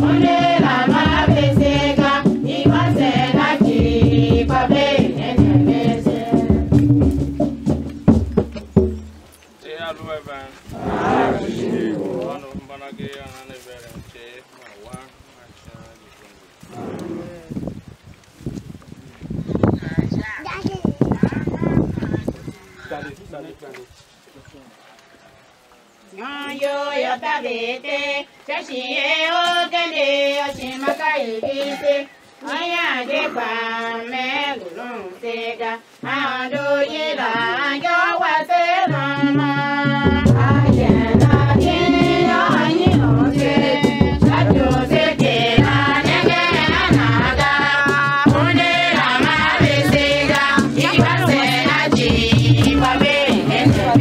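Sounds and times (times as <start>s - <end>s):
woman singing: 0.0s - 7.0s, 26.2s - 54.0s
percussion: 0.0s - 15.1s, 28.6s - 54.0s.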